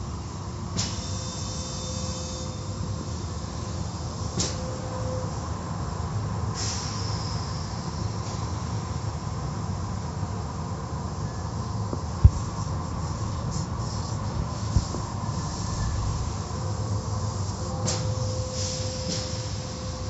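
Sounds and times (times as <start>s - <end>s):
car wash machinery rumble: 0.0s - 20.0s
short sharp hiss: 6.6s - 7.5s
hissing spray: 12.2s - 16.4s.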